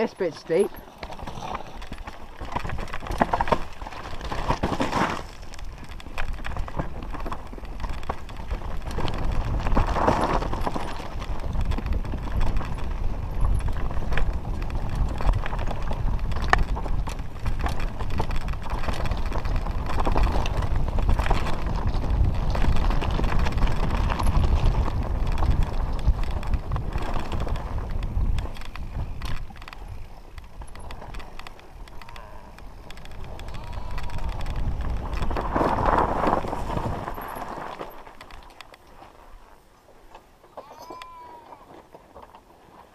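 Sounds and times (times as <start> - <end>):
mountain bike clattering: 0.0 - 42.9
tyres knocking over stones: 1.2 - 5.6.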